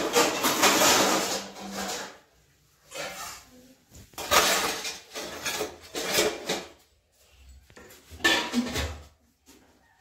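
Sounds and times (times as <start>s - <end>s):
metal spoon scraping rice from pot: 1.5s - 3.6s.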